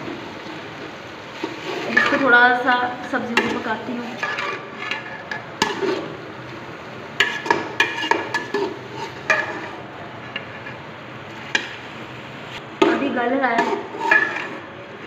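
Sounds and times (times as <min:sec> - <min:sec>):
faint frying hiss: 0:00.0 - 0:15.0
metal spoon scraping in pot: 0:01.4 - 0:02.4, 0:03.3 - 0:06.2, 0:07.2 - 0:10.8, 0:13.5 - 0:14.7.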